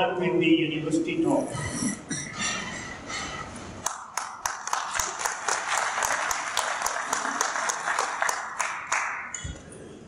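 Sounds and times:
audience applause: 0:03.8 - 0:09.3
pair of hands clapping sharply: 0:03.8 - 0:09.3.

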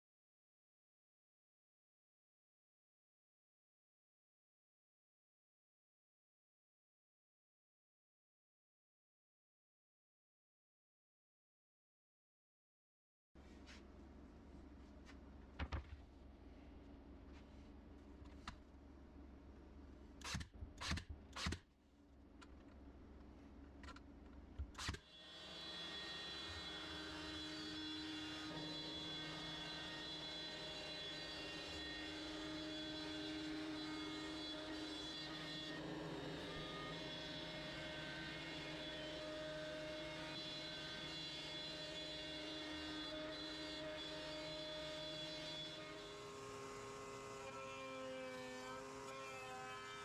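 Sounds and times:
router running whine: 0:24.8 - 0:50.0.

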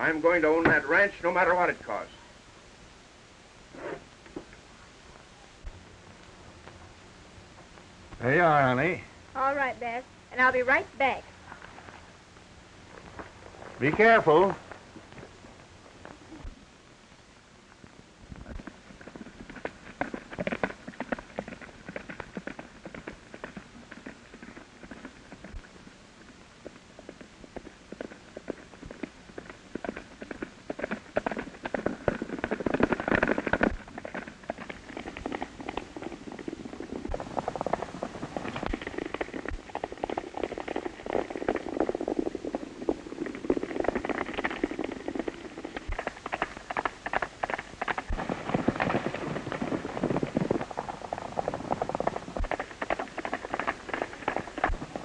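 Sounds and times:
horses galloping on dirt: 0:00.0 - 0:02.3, 0:12.9 - 0:16.6, 0:17.8 - 0:55.0.

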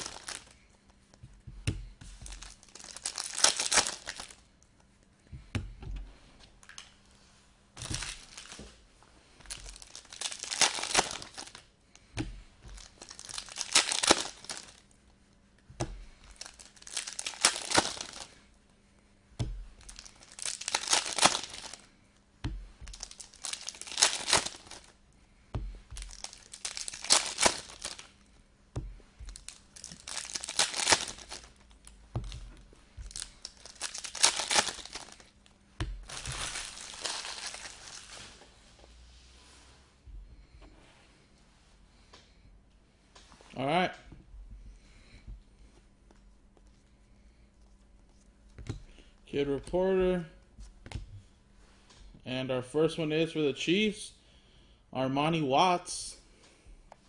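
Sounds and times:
plastic wrappers crinkling: 0:00.0 - 0:00.7, 0:02.0 - 0:04.6, 0:07.8 - 0:15.0, 0:15.8 - 0:18.5, 0:19.4 - 0:38.7.

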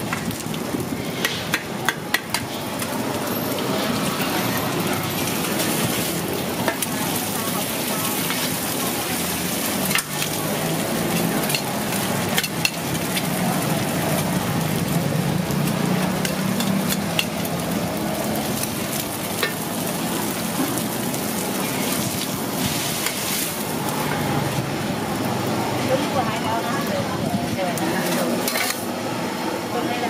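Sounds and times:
noodles sizzling in oil: 0:00.0 - 0:30.0
metal spatulas scraping a pan: 0:22.6 - 0:23.6, 0:28.0 - 0:28.9.

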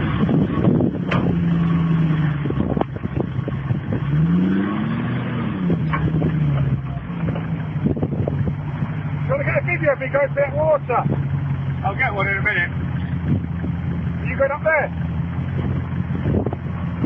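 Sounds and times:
car engine running and revving: 0:00.0 - 0:17.0.

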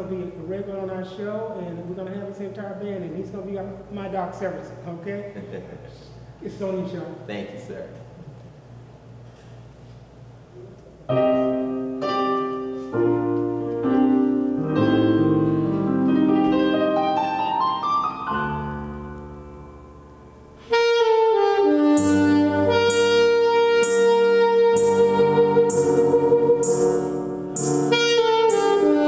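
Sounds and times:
piano chords: 0:11.0 - 0:29.0
saxophone long held note: 0:20.6 - 0:29.0
cymbal steady beat: 0:21.8 - 0:29.0.

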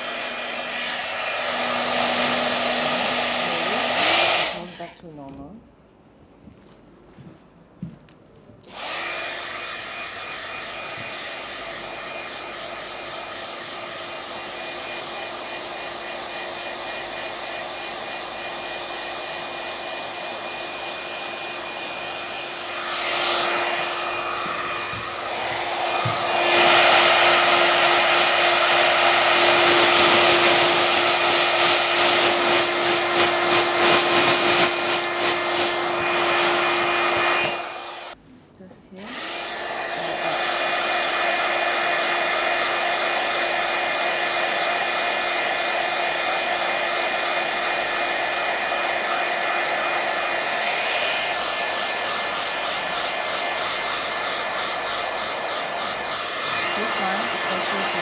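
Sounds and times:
handheld fan whirring: 0:00.0 - 0:04.9, 0:08.6 - 0:38.2, 0:39.0 - 0:58.0.

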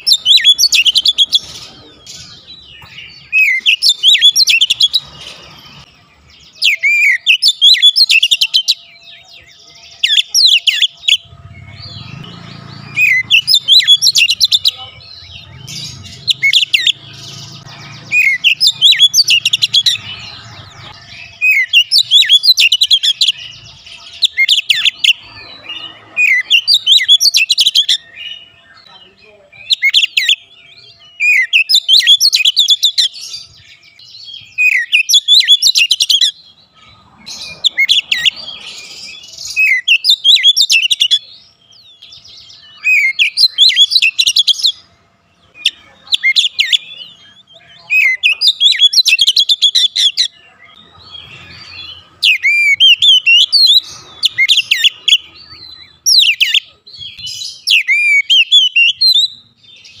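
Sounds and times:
bird singing whistled phrases: 0:00.0 - 0:01.5, 0:02.2 - 0:05.0, 0:06.5 - 0:17.0, 0:21.2 - 0:23.4, 0:33.8 - 0:36.4, 0:39.0 - 0:44.8, 0:45.5 - 0:50.4, 0:51.4 - 1:00.0.

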